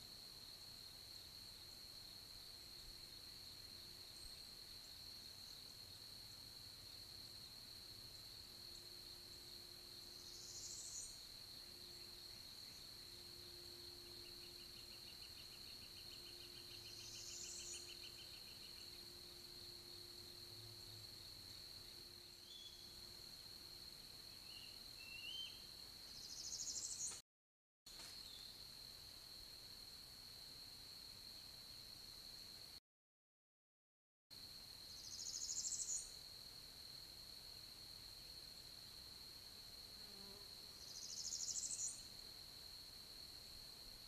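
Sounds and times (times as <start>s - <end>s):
songbird trill: 0.6s - 6.6s, 7.3s - 27.2s, 28.1s - 28.7s, 34.9s - 36.2s, 40.2s - 42.2s
faint bird chirps: 10.2s - 13.0s, 13.6s - 19.1s, 21.8s - 23.0s, 24.3s - 27.2s, 35.0s - 36.2s, 40.8s - 42.1s.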